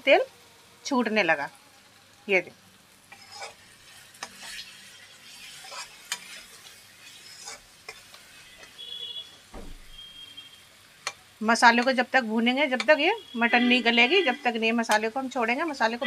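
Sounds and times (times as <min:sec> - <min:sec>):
soft sizzle of frying paste: 0:00.0 - 0:16.0
metal ladle scraping metal pan: 0:03.1 - 0:08.8.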